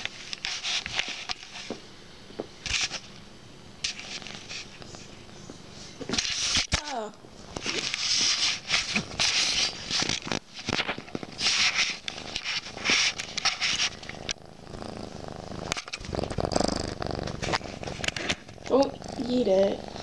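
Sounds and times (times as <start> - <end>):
kitten purring: 7.6 - 20.0
rustling fur: 7.6 - 20.0.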